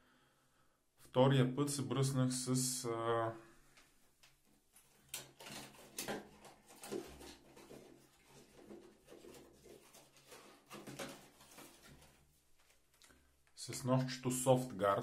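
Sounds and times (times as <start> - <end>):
objects being handled: 3.8 - 13.6.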